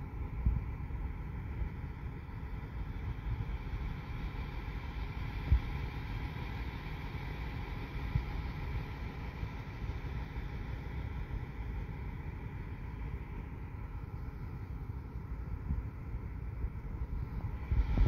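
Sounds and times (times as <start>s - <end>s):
wind buffeting microphone: 16.6s - 18.0s.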